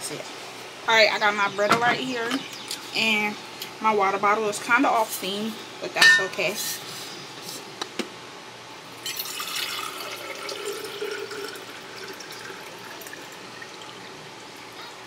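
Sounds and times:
water running from a tap: 9.0s - 14.1s.

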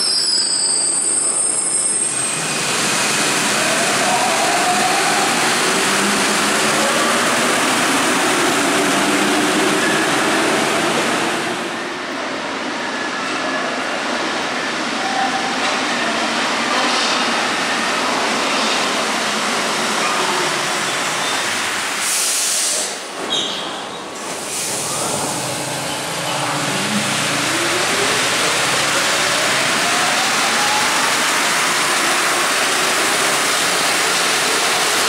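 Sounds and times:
train running: 1.8s - 35.0s.

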